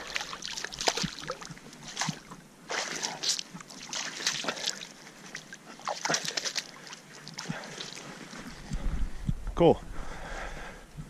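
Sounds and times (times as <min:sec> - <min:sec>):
hands splashing shallow water: 0:00.0 - 0:08.1.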